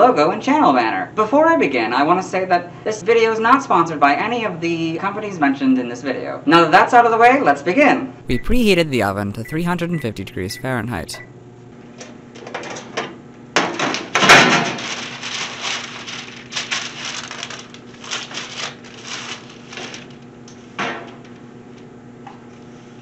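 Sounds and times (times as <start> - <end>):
parchment paper rustling: 15.3 - 20.0.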